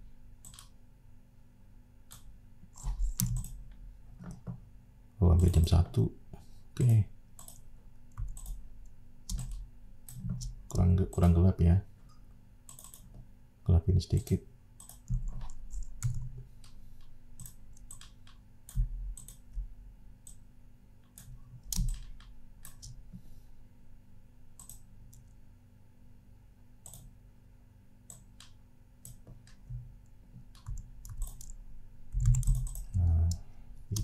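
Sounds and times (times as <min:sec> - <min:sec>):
mouse and keyboard clicks: 0:02.1 - 0:03.6, 0:12.7 - 0:13.2, 0:24.6 - 0:25.3.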